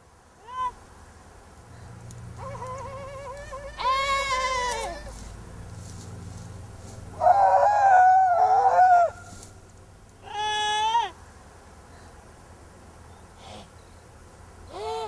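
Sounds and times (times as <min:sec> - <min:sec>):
long bleating calls: 0:02.4 - 0:05.2, 0:10.2 - 0:11.2, 0:14.7 - 0:15.0.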